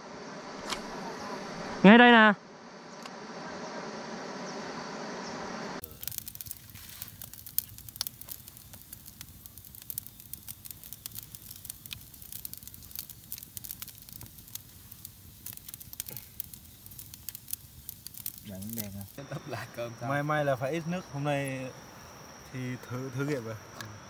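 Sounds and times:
low rumble of flames: 0.0 - 24.0
campfire crackling and popping: 5.8 - 24.0.

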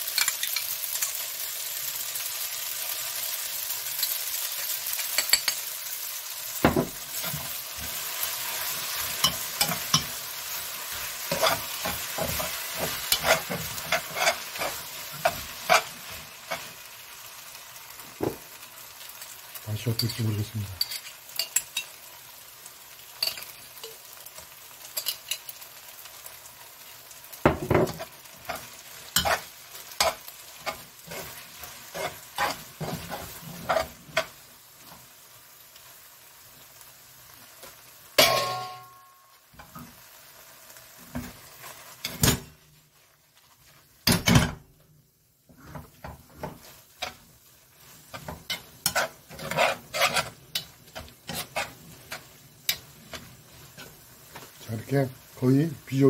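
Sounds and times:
food sizzling in a frying pan: 0.0 - 56.0
utensil clicking and scraping pan: 10.9 - 16.8, 27.9 - 34.4, 47.8 - 54.6
ringing knocks on pan: 38.2 - 39.0.

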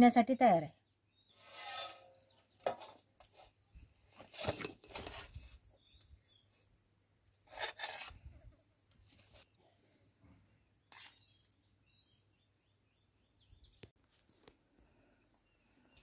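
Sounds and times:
metal ladle scraping a pot: 1.4 - 2.9, 7.5 - 8.2.

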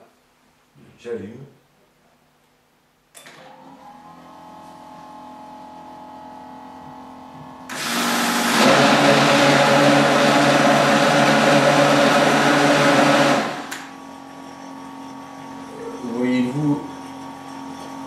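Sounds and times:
blender whirring: 7.7 - 18.0
blender switch click: 13.7 - 13.9.

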